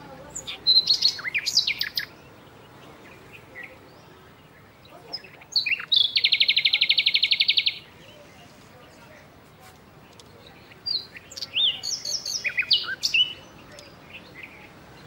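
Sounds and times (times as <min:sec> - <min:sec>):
songbirds chirping and whistling: 0:00.0 - 0:15.0
bird trilling: 0:00.3 - 0:02.2.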